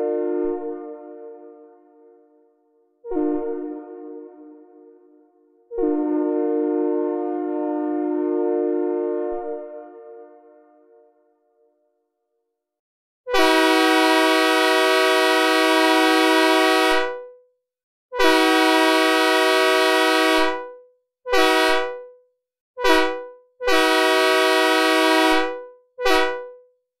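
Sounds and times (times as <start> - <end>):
synthesized air horn blasts: 0.0 - 1.8, 3.0 - 10.6, 13.3 - 17.2, 18.1 - 20.7, 21.3 - 22.1, 22.8 - 26.6.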